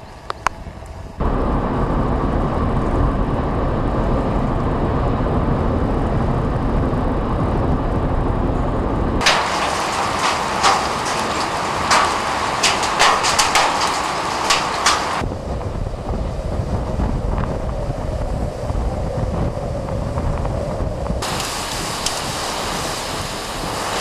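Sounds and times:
car road and engine noise: 0.0 - 24.0
heavy rain with hail: 9.2 - 15.2, 21.2 - 24.0.

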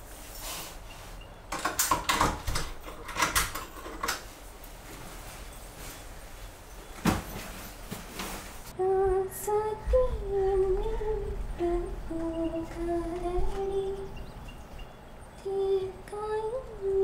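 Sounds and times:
woman humming: 8.8 - 14.2, 15.4 - 17.0.

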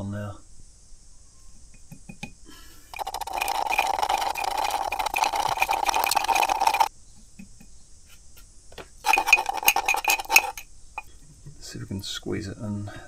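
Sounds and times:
metal spatula scraping glass jar: 3.0 - 6.9, 9.0 - 10.6.

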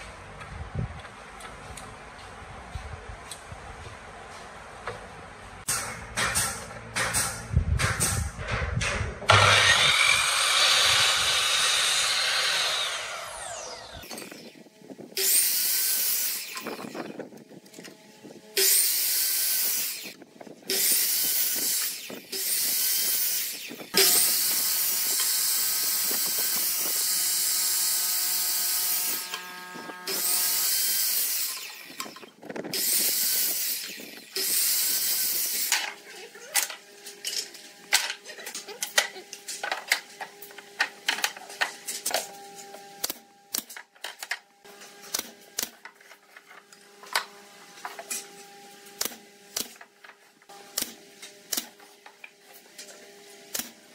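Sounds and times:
miter saw cutting wood: 9.3 - 17.1, 18.6 - 35.8.

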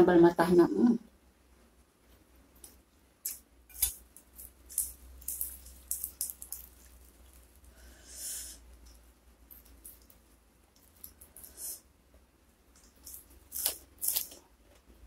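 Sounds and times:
herb leaves crackling and rustling: 3.8 - 7.9, 12.8 - 14.4.

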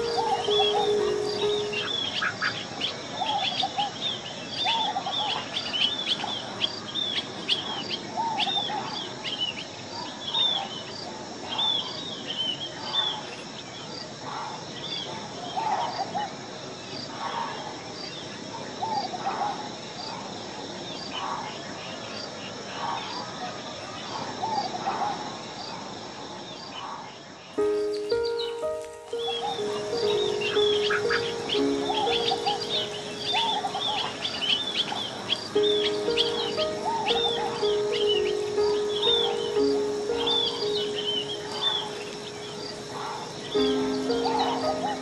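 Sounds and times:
downward-slurred bird chirps: 0.0 - 3.8, 27.6 - 45.0
low hooked bird calls: 0.0 - 3.9, 27.7 - 45.0.

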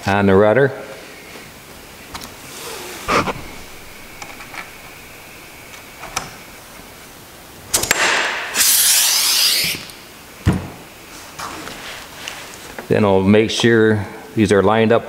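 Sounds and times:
loud hissing rush: 2.4 - 9.8.

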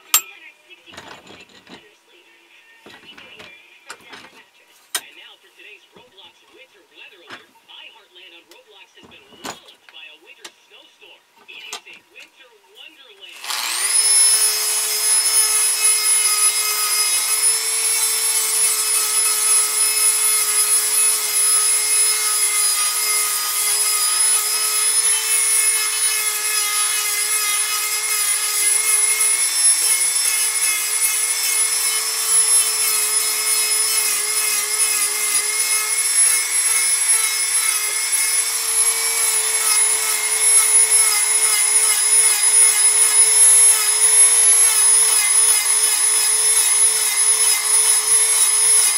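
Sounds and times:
rotary tool grinding wood: 13.3 - 48.9.

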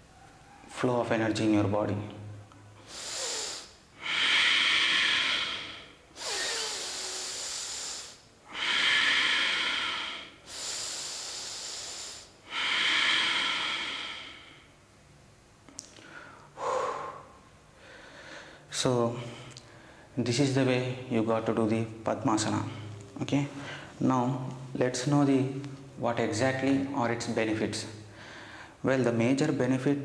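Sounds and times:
man breathing through nose: 2.8 - 14.8, 16.0 - 20.2, 28.0 - 28.8.

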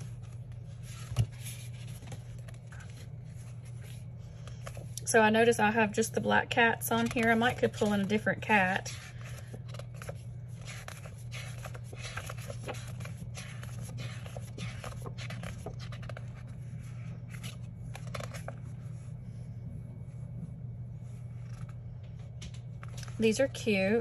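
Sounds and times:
paper rustling and crinkling: 0.0 - 5.0, 6.7 - 19.2, 21.0 - 23.4
steady low hum: 0.0 - 24.0.

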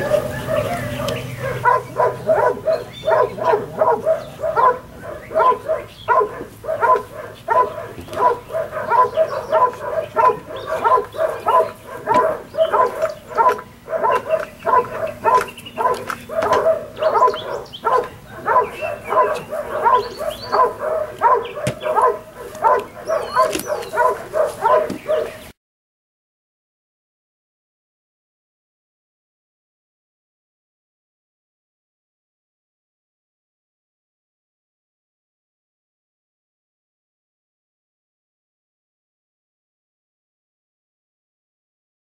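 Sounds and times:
dog barking: 0.0 - 25.5.

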